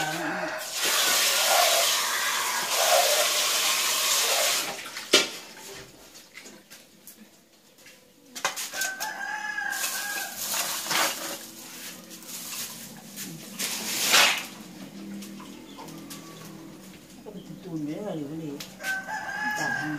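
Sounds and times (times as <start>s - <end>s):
rooster crowing: 0.0s - 0.8s, 8.7s - 10.5s, 18.7s - 19.9s.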